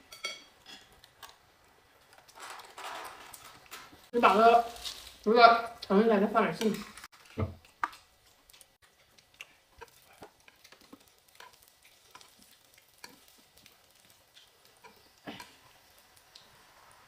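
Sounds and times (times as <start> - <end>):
chopsticks clicking against pan: 7.7 - 13.7
vegetables sizzling on grill pan: 8.3 - 17.0.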